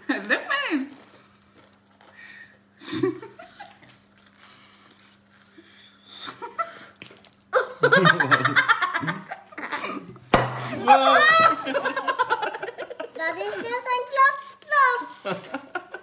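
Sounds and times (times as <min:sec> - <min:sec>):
laughter: 0:02.8 - 0:03.9, 0:07.6 - 0:10.2, 0:11.2 - 0:13.7, 0:15.2 - 0:16.0.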